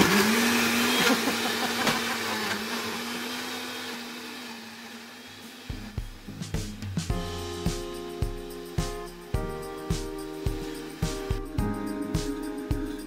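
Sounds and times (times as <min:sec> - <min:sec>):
blender motor running: 0:00.0 - 0:06.2
music with drum beat: 0:05.7 - 0:13.0.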